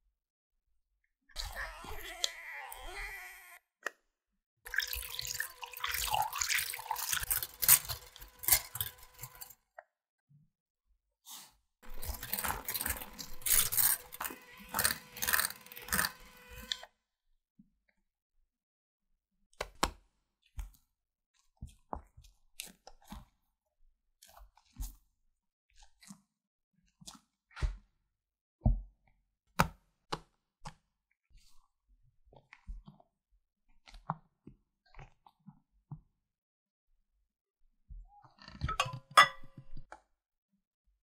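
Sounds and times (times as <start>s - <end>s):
electric whisk beating in bowl: 4.7s - 9.6s, 11.8s - 16.9s.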